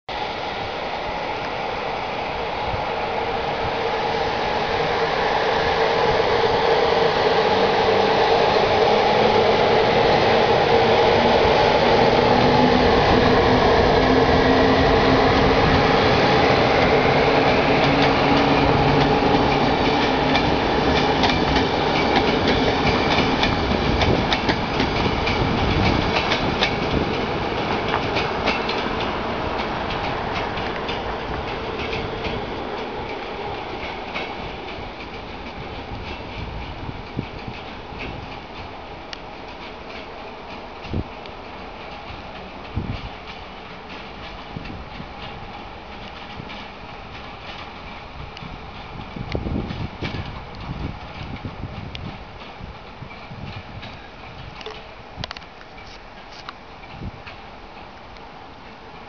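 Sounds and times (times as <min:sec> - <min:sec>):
electric locomotive hum: 0:00.1 - 0:59.0
wheels clicking over rail joints: 0:14.8 - 0:59.0.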